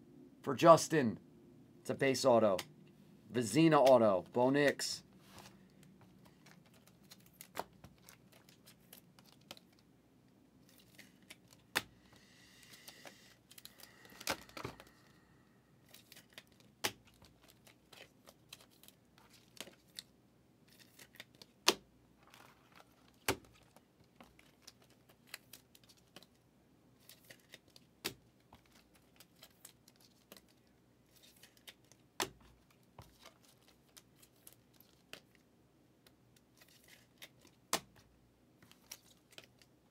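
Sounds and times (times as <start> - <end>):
cards clicking and tapping on table: 32.2 - 33.2.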